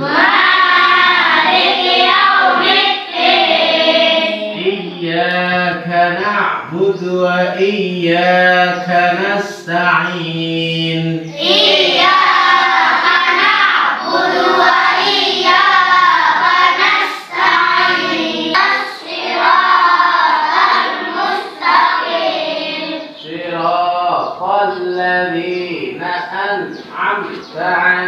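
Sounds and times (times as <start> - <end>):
girls reciting in melodic chant: 0.0 - 6.2, 6.9 - 26.4
man chanting recitation: 4.1 - 13.3, 22.0 - 28.0.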